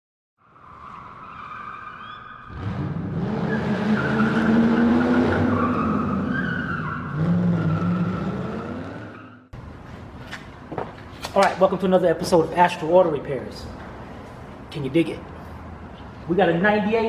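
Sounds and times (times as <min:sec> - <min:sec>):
tires squealing: 0:00.4 - 0:09.5
engine revving hard: 0:02.5 - 0:06.4, 0:07.0 - 0:09.4.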